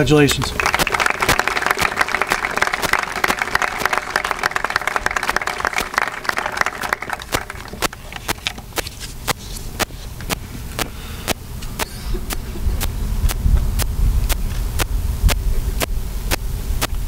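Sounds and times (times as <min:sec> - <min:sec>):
audience applauding: 0:00.4 - 0:08.6.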